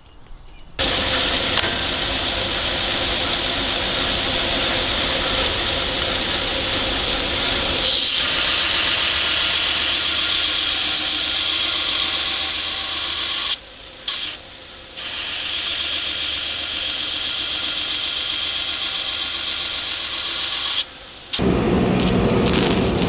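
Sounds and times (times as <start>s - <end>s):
angle grinder cutting steel: 0.8s - 14.4s, 15.0s - 21.4s
arc welding crackle: 22.0s - 23.0s.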